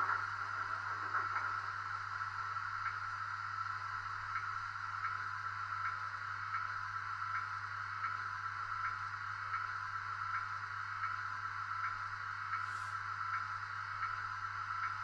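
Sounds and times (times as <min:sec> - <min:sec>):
faint repeating tick: 0:04.3 - 0:05.2, 0:05.8 - 0:08.2, 0:08.8 - 0:09.7, 0:10.3 - 0:11.2, 0:11.8 - 0:12.7, 0:13.3 - 0:14.2, 0:14.8 - 0:15.0.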